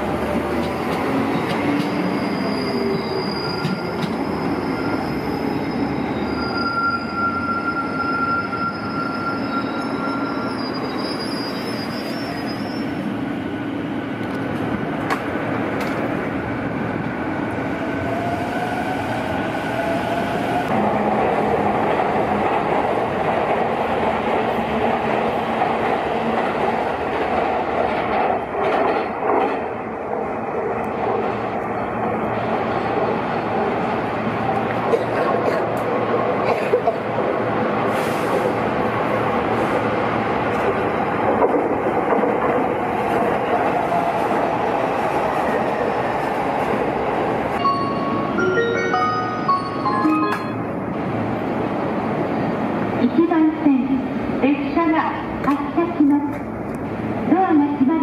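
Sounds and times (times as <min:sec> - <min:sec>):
train wheel and rail noise: 0:00.0 - 0:58.0
high wheel squeal: 0:01.7 - 0:13.1.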